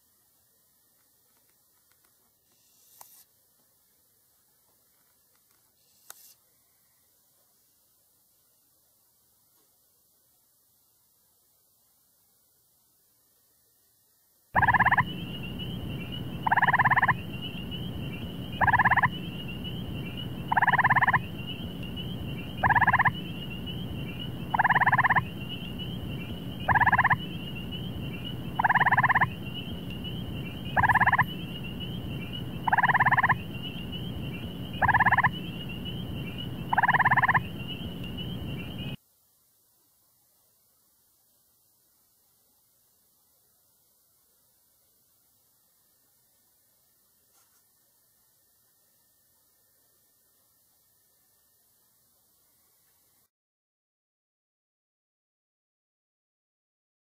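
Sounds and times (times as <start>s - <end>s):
frog trilling: 14.6s - 39.0s
steady high buzz: 14.6s - 39.0s.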